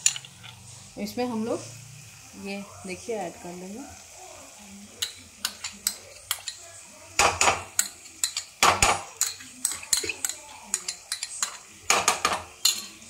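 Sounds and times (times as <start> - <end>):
metal spoon clinking on glass: 0.0 - 0.6, 5.0 - 6.7, 7.4 - 13.0.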